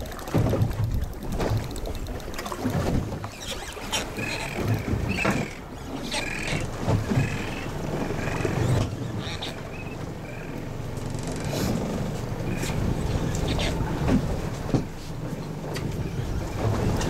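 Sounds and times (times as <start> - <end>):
waves slapping against boat hull: 0.0 - 17.0
short high squeaks: 3.2 - 6.5.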